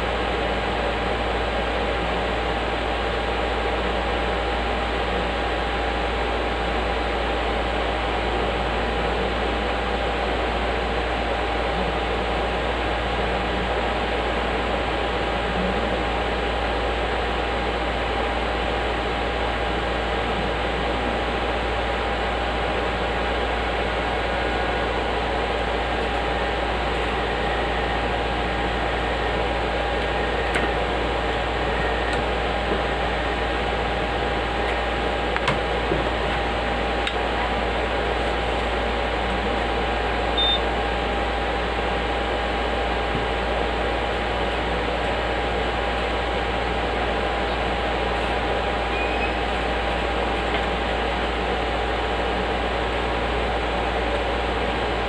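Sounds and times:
cooling fans whirring hum: 0.0s - 55.0s
faint constant whine: 0.0s - 55.0s
high beep: 40.4s - 40.6s.

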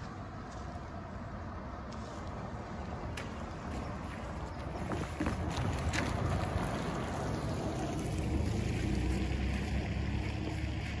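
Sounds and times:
wind rumble on microphone: 0.0s - 11.0s
tyres hissing on wet pavement: 4.2s - 11.0s.

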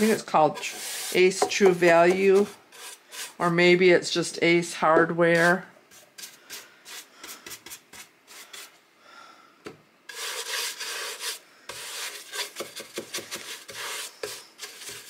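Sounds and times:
paintbrush scratchy strokes: 0.0s - 3.5s, 10.1s - 12.6s, 13.3s - 15.0s.

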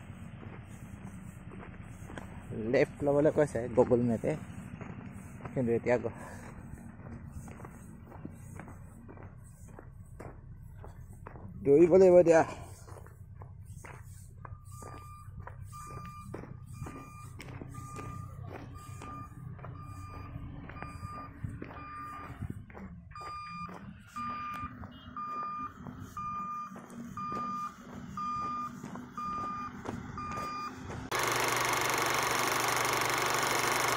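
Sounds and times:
footsteps on gravel: 0.0s - 31.3s
vehicle engine running: 0.0s - 33.9s
vehicle reversing alarm beeping: 0.0s - 33.9s
loud steady noise: 14.7s - 33.9s.

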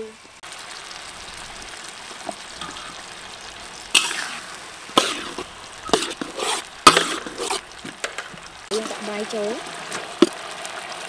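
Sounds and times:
vegetables sizzling in a wok: 0.0s - 11.0s
metal spatula scraping wok: 2.6s - 10.3s.

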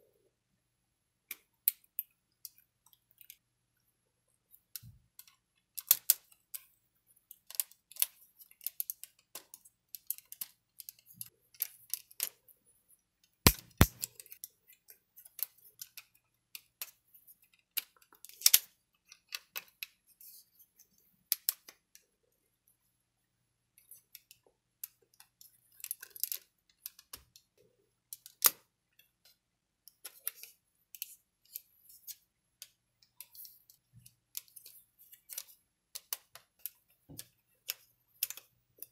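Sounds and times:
action figure parts clicking: 13.5s - 14.4s.

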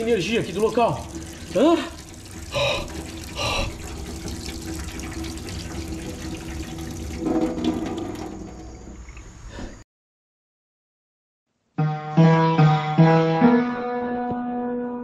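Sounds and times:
tap water running into sink: 0.0s - 9.3s
water splashing: 0.0s - 9.4s.

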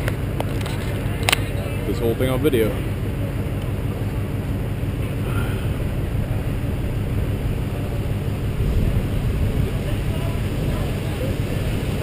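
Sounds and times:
pickup truck engine rumbling: 0.0s - 12.0s
wind on microphone: 5.2s - 12.0s.

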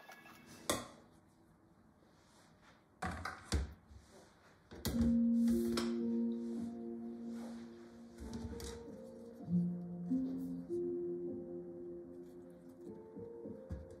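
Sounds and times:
soft instrumental music: 4.9s - 14.0s.

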